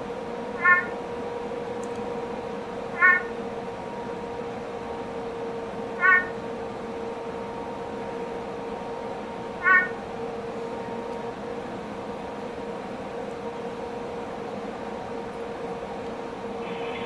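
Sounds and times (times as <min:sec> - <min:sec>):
steady hum: 0:00.0 - 0:17.0
frog calling: 0:00.6 - 0:01.0, 0:02.9 - 0:03.4, 0:05.9 - 0:06.4, 0:09.6 - 0:10.0.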